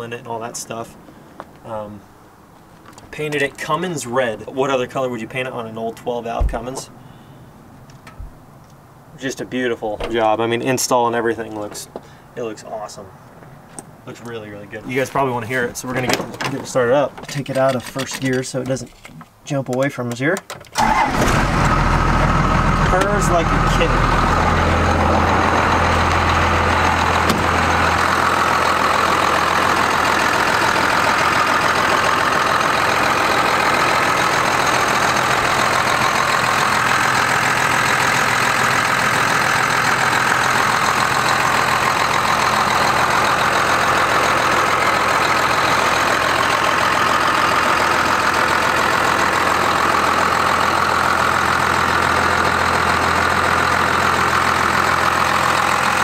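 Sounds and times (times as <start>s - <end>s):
diesel engine idling: 20.8s - 56.0s.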